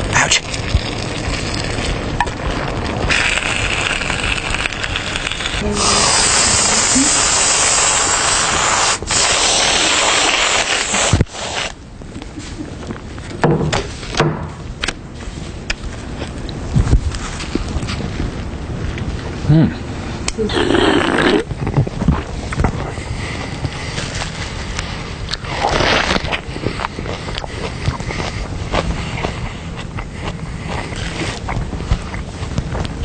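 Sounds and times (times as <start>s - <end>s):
loud hissing spray: 3.1s - 11.8s
soft rustles and clicks: 14.8s - 19.4s, 21.5s - 33.0s.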